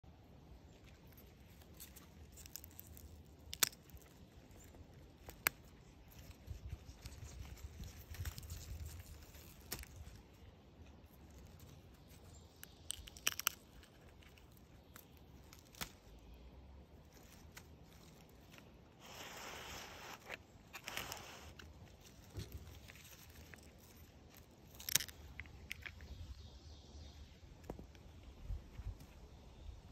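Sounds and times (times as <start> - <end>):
leaf rustling: 0.6 - 26.5
pea pods snapping: 1.0 - 16.4, 20.2 - 26.5.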